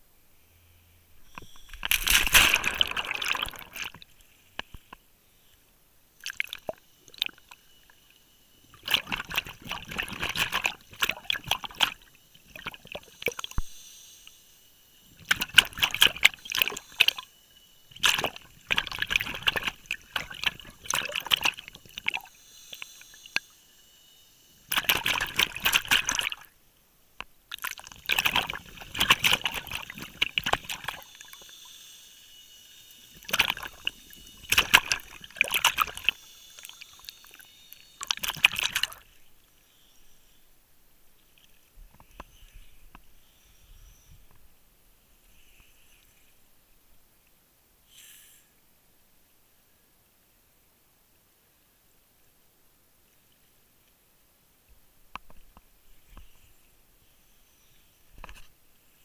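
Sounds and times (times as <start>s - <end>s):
bubbling exhaled air underwater: 1.4s - 4.1s, 8.7s - 13.7s, 15.2s - 17.2s, 17.9s - 22.3s, 24.7s - 26.5s, 27.5s - 31.6s, 33.2s - 37.4s, 38.0s - 39.0s.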